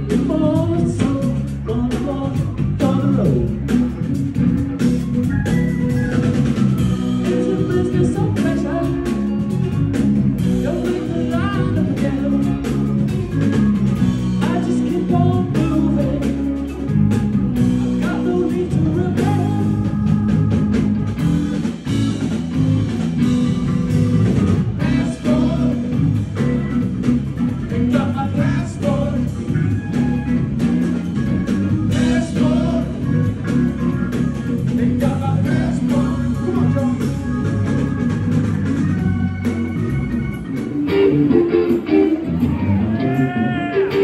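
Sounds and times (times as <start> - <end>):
man singing: 0.0 - 3.9, 7.0 - 9.6, 10.4 - 13.2, 14.2 - 16.9, 17.8 - 20.8, 24.8 - 26.7, 27.5 - 30.6, 31.8 - 33.5, 34.6 - 37.2, 42.5 - 44.0
live band playing: 0.0 - 44.0.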